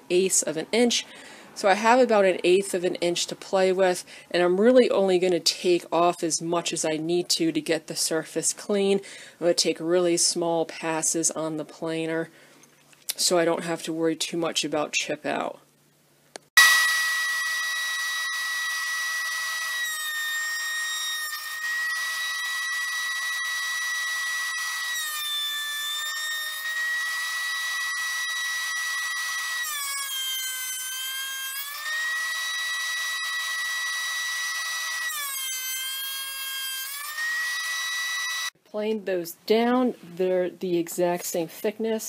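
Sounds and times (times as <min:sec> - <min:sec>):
thickness planer whining: 0:16.6 - 0:38.6.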